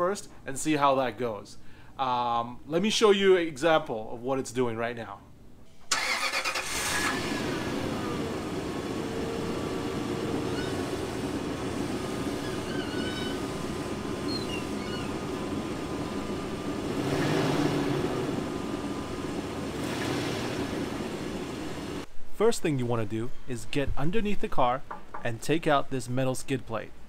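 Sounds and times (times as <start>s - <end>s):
car engine idling: 6.0s - 22.0s
whirring whine: 6.2s - 22.1s.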